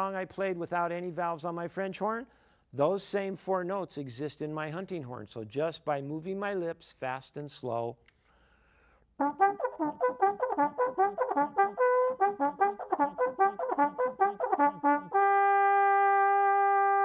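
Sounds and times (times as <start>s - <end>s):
hunting horn fanfare: 9.2s - 17.0s.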